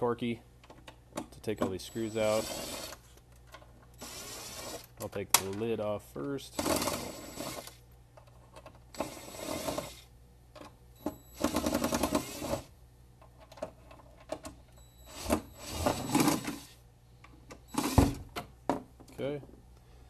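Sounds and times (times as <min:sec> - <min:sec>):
cordless driver whirring: 0:01.9 - 0:03.0, 0:06.6 - 0:07.8, 0:15.1 - 0:16.8.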